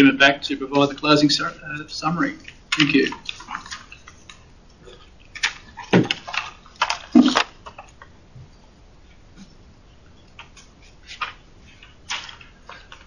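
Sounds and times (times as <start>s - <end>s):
papers rustling: 0.9s - 4.5s, 5.2s - 8.1s, 10.3s - 13.0s.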